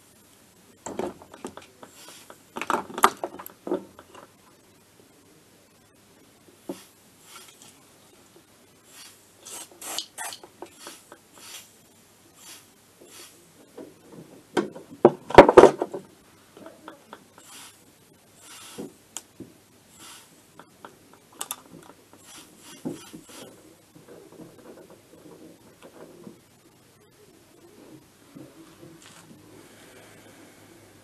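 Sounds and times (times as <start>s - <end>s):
aerosol spray hisses: 6.7s - 7.8s, 8.9s - 11.8s, 12.4s - 13.4s, 17.4s - 17.8s, 18.4s - 18.9s, 19.9s - 20.4s.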